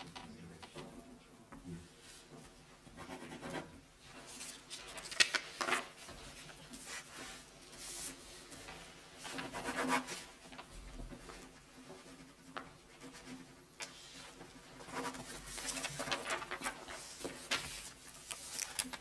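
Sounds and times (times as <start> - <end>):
paper rustling: 4.2 - 9.5, 14.8 - 19.0
pens scratching on paper: 13.0 - 19.0.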